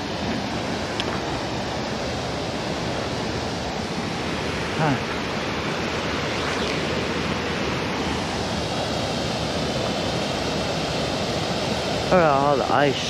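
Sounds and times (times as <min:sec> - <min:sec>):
water rushing over a spillway: 0:00.0 - 0:13.0.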